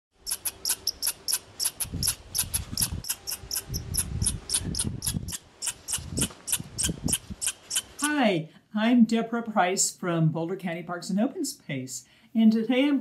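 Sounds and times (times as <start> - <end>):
small animal chirping: 0.2 - 8.2.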